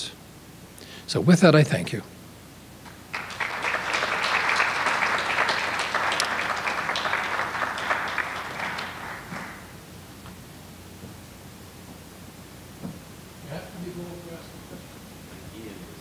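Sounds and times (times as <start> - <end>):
audience applauding: 2.9 - 9.8.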